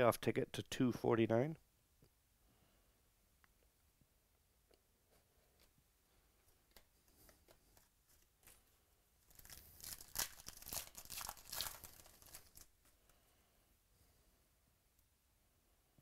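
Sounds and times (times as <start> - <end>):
cards being handled: 6.4 - 8.7, 9.3 - 13.0
foil wrapper tearing and crinkling: 9.2 - 12.8.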